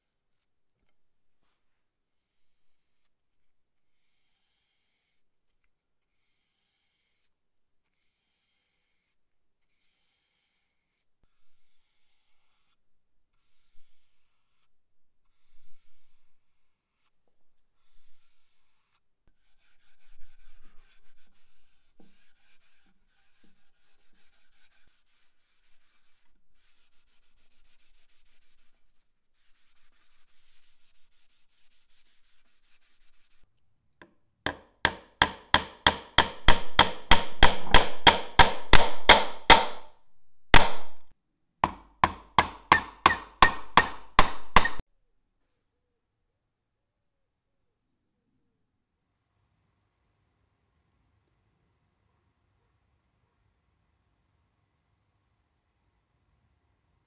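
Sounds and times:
faint brushing and scraping: 0.0 - 33.6
pad rubbing wooden panel: 42.0 - 44.8.

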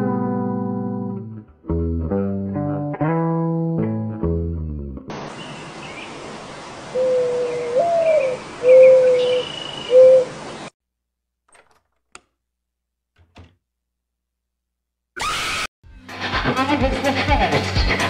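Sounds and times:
music: 0.0 - 5.1, 15.8 - 18.0
outdoor hiss: 5.1 - 8.7
owl hooting: 6.9 - 10.4
loud scream: 15.2 - 15.7.

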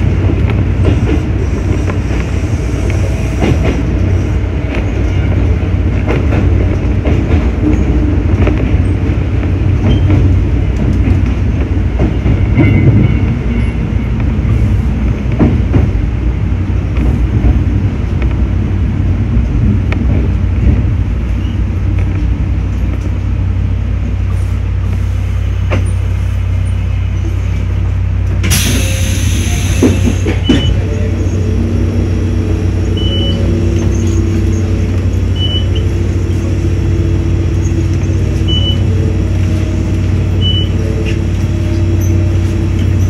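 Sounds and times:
electric train rumble: 0.0 - 43.0
hiss of air: 28.5 - 30.3.

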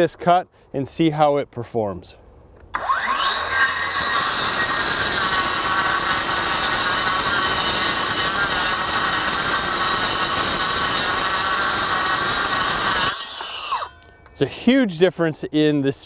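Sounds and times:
circular saw cutting wood sheets: 2.7 - 14.0.

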